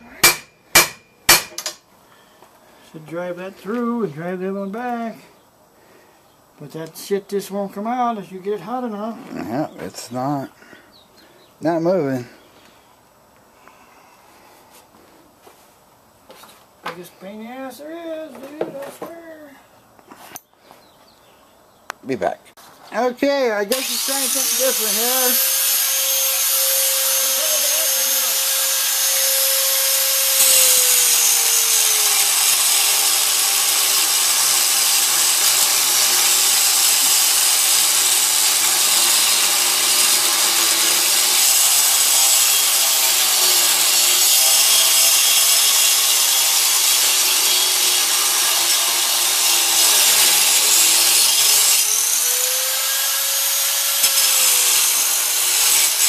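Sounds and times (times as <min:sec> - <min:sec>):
angle grinder grinding steel: 0:23.7 - 0:56.0.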